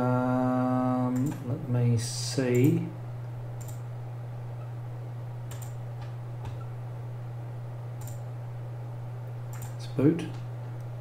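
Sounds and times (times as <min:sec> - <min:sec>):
low electrical hum: 0:00.0 - 0:11.0
computer mouse clicking: 0:03.6 - 0:03.8, 0:05.5 - 0:06.6, 0:08.0 - 0:08.2, 0:09.5 - 0:10.4.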